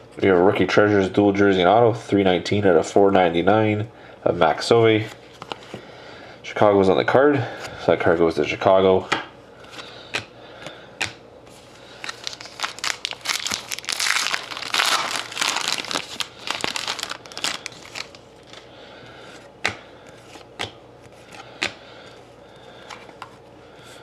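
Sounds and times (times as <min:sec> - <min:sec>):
foil wrapper crinkling: 0:11.9 - 0:18.7.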